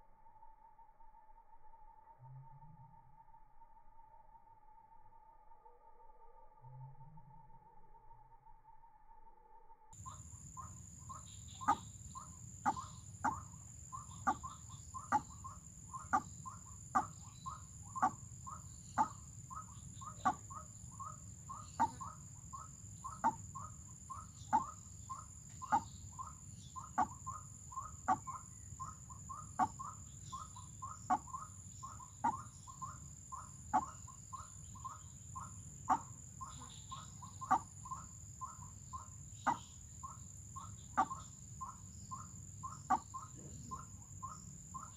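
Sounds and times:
waterhen calls: 10.0 - 34.1, 34.8 - 39.7.

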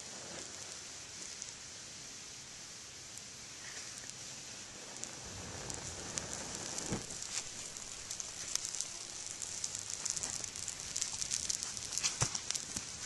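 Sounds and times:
dry grass burning: 0.0 - 13.0.

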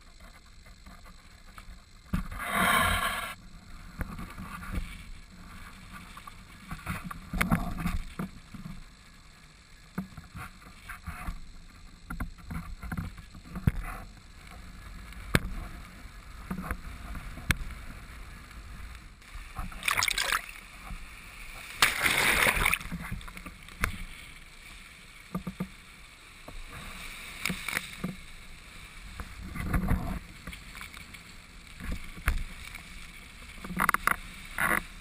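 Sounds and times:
wind: 0.0 - 35.0
surf: 14.5 - 35.0.

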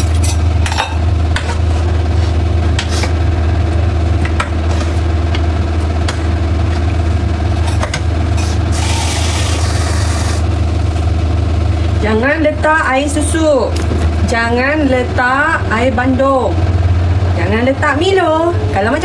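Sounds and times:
extractor fan humming: 0.0 - 19.0.

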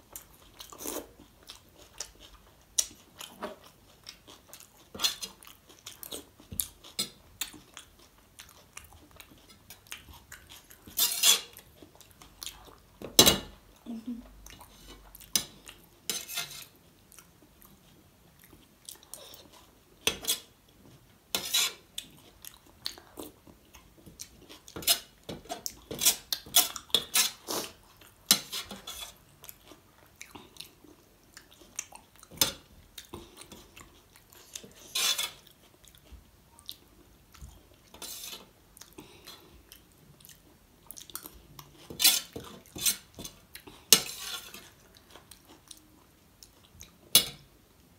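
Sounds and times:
close-up chewing: 0.0 - 13.0, 16.6 - 19.8, 21.9 - 24.8, 29.1 - 38.0, 38.7 - 47.1.

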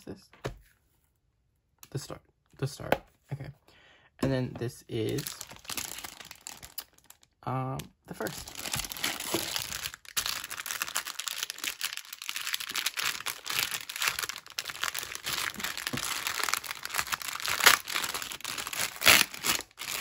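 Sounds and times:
plastic wrap crinkling and tearing: 4.9 - 20.0.

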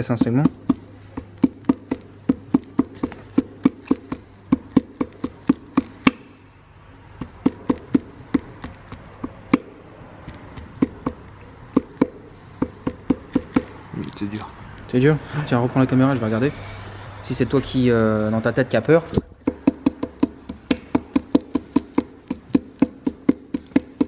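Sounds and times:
light tapping on piston: 7.2 - 13.8.

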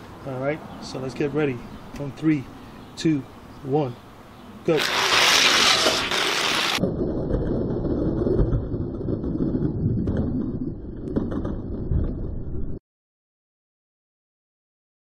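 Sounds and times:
toy cars rolling down plastic track: 4.8 - 6.8.

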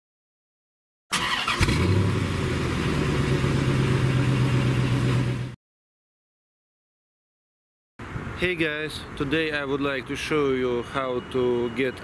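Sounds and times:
car engine cranking: 1.1 - 5.4
car engine idling: 1.2 - 5.6.

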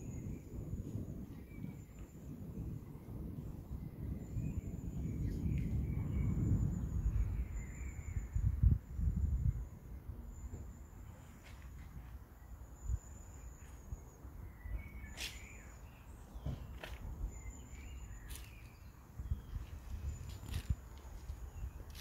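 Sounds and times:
wind on microphone: 0.0 - 12.2, 16.3 - 22.0
bird chirps: 12.8 - 20.6.

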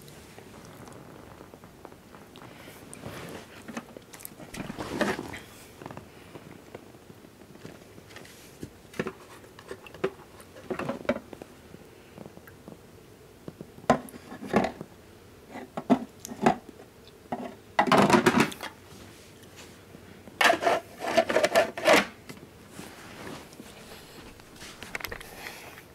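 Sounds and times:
plastic clattering: 3.6 - 5.4, 8.9 - 11.3, 17.3 - 18.7, 20.4 - 22.2.

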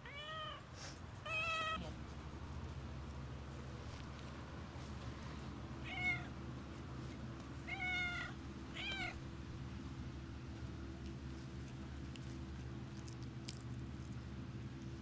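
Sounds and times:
cat meowing: 0.0 - 0.6, 1.2 - 1.8, 5.8 - 6.3, 7.6 - 9.2.

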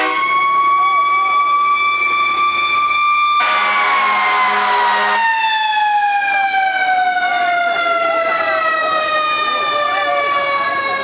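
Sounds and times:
fire engine siren winding down: 0.0 - 11.0
air horn blast: 3.4 - 5.2.

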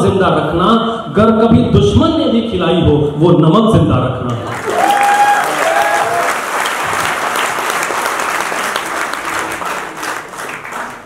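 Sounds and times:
audience applauding: 4.4 - 11.0.

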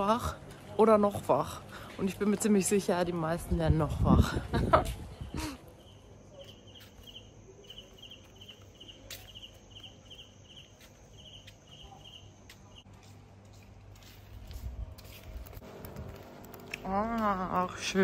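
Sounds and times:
cricket chirping: 5.8 - 12.8.

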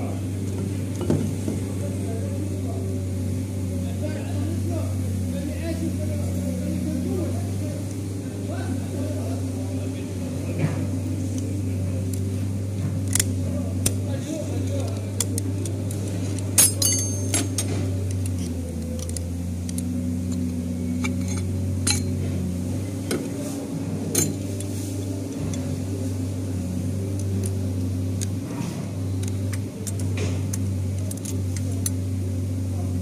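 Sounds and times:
low machine hum: 0.0 - 33.0
metal clutch plates clinking: 13.0 - 23.4, 24.0 - 26.3.

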